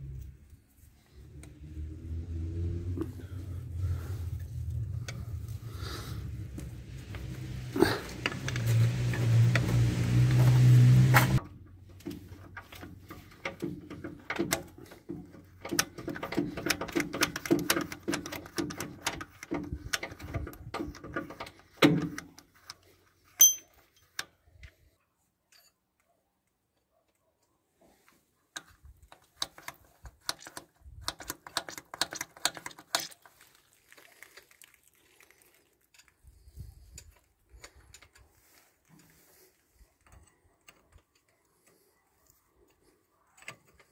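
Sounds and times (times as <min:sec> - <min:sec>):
sharp metallic clink: 0:23.4 - 0:23.8
tools clicking on metal fittings: 0:23.4 - 0:24.3.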